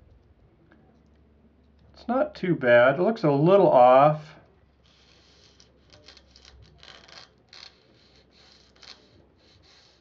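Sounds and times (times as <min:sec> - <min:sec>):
scratchy rubs on foam: 0:04.8 - 0:10.0.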